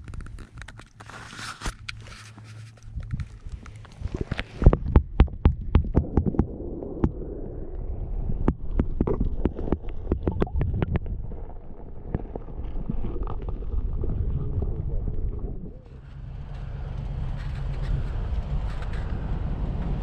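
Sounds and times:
muffled underwater rumble: 2.9s - 20.0s
sharp underwater clicks and taps: 3.0s - 7.2s, 8.4s - 11.1s.

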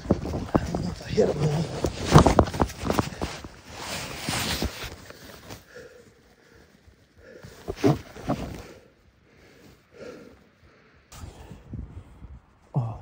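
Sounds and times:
person breathing hard: 5.1s - 12.0s.

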